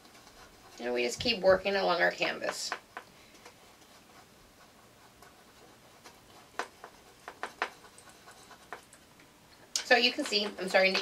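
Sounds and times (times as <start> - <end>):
brush strokes on canvas: 3.5 - 8.8.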